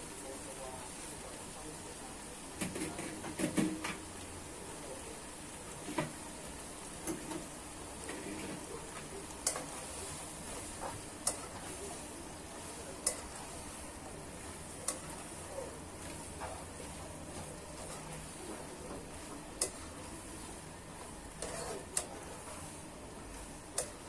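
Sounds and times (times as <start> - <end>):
vegetables sizzling in a wok: 0.0 - 24.0
spatula clicking on pan: 9.4 - 9.7, 11.2 - 11.6, 13.0 - 13.4, 14.8 - 15.2, 19.0 - 19.9, 23.7 - 24.0.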